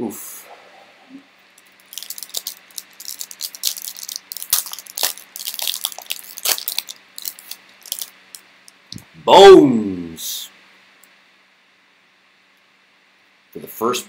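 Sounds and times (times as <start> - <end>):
foil wrapper crinkling and tearing: 1.8 - 8.1.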